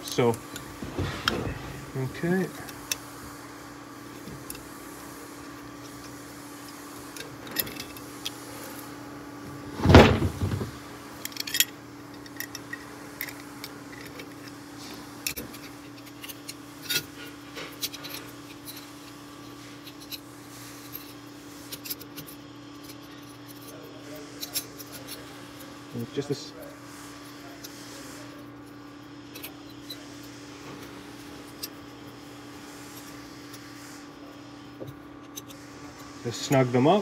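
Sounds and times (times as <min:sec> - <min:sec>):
handling knocks: 0:09.7 - 0:10.8.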